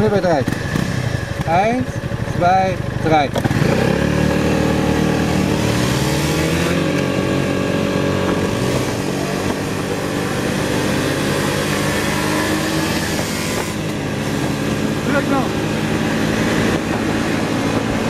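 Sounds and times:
scooter engine at full throttle: 0:00.0 - 0:18.0
wind noise: 0:05.1 - 0:18.0.

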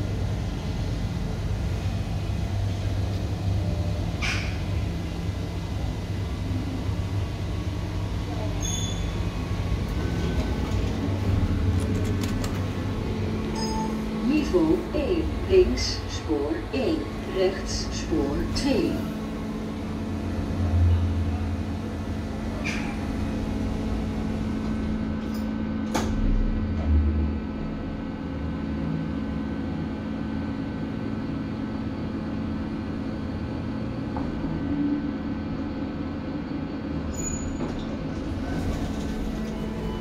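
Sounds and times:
lift motor hum: 0:00.0 - 0:29.6, 0:37.8 - 0:40.0.

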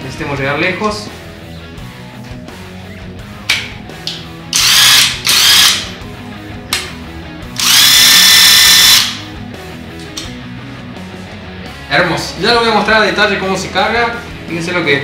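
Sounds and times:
impact wrench motor whirring: 0:04.5 - 0:06.0, 0:07.6 - 0:09.2.

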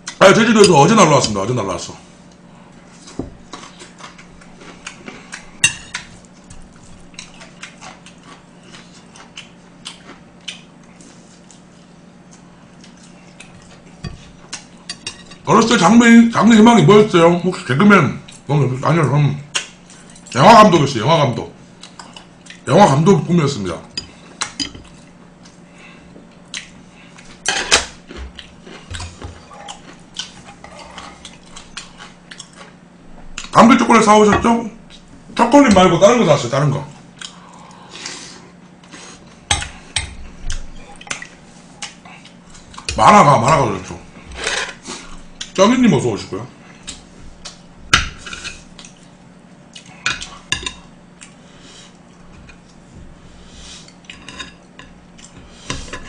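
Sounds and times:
faint steady hum: 0:00.0 - 0:56.0
chewing food: 0:02.3 - 0:15.0, 0:26.2 - 0:33.6.

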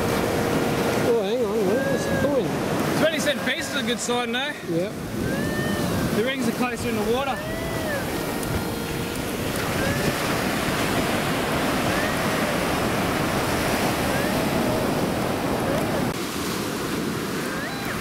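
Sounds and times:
surf washing up beach: 0:00.0 - 0:18.0
wind on microphone: 0:04.7 - 0:18.0.

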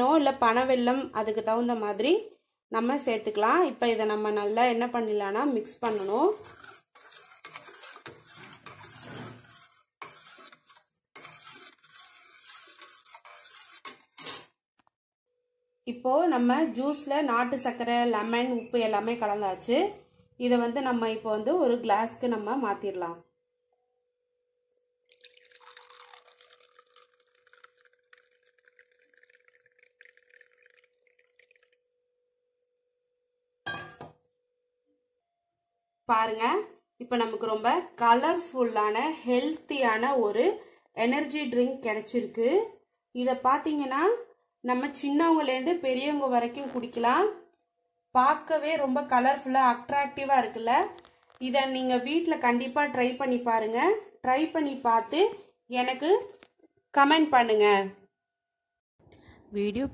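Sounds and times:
spoon stirring liquid in steel bowl: 0:04.0 - 0:14.7, 0:25.2 - 0:31.9
juice pouring into a glass: 0:25.0 - 0:32.2.

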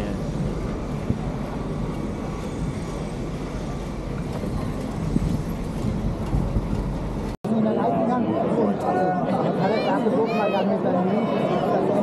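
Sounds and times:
wind rush on microphone: 0:00.0 - 0:07.4.

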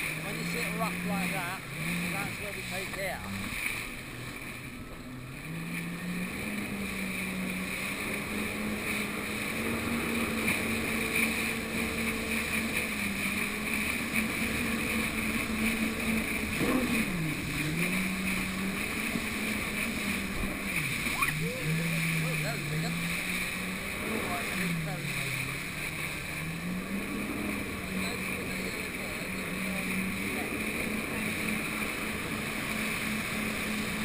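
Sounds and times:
jet ski engine running: 0:00.0 - 0:34.0.

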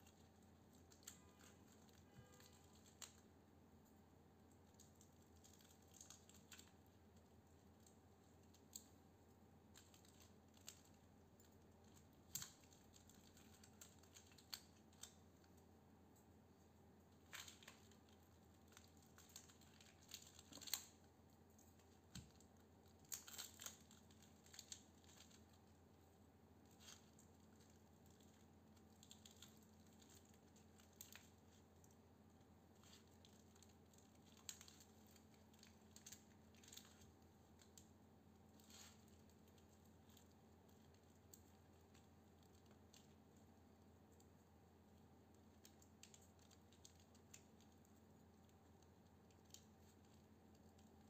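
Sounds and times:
wire scraping and clicking: 0:17.3 - 0:25.7, 0:32.8 - 0:37.9.

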